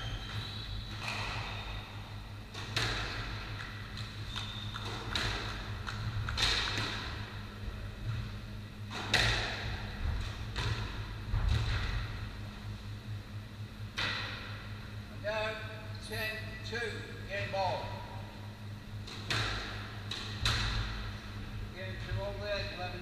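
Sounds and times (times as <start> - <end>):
squash ball smacks echoing: 2.5 - 7.4, 8.9 - 12.3, 19.0 - 21.1.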